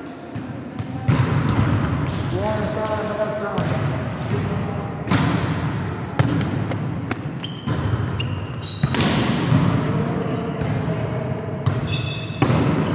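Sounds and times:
volleyball hits: 0.3s - 4.4s, 5.0s - 10.0s, 11.6s - 12.9s
sports shoes squeaking: 7.2s - 9.2s, 11.7s - 12.9s.

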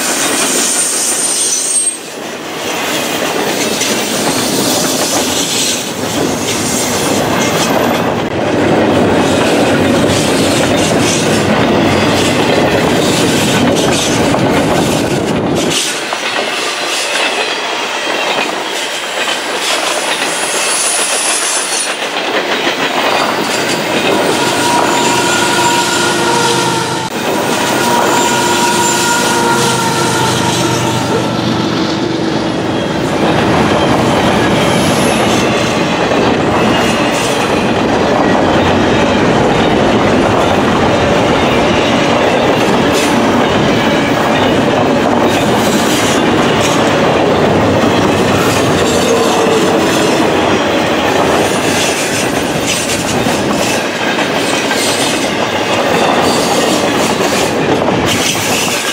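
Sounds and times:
train cars rumbling past: 0.0s - 58.9s
wheel squeal: 0.3s - 2.1s, 27.5s - 31.2s
wheels clacking over rails: 2.7s - 29.9s.

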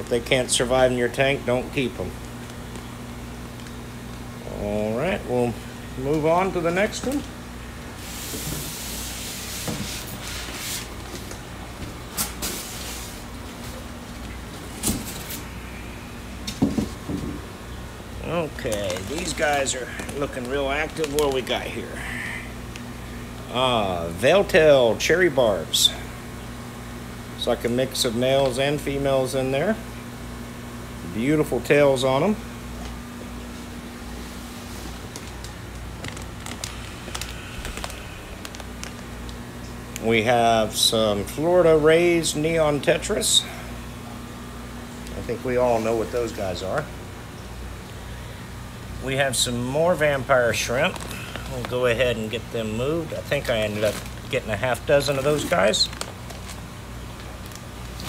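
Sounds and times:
steady low hum: 0.0s - 58.0s
plastic bags crinkling: 18.2s - 22.0s, 34.8s - 39.6s, 49.9s - 58.0s.

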